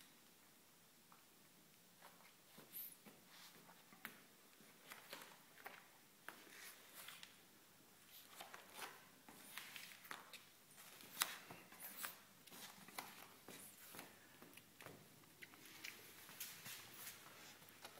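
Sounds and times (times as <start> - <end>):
cat licking and suckling: 14.3 - 17.9.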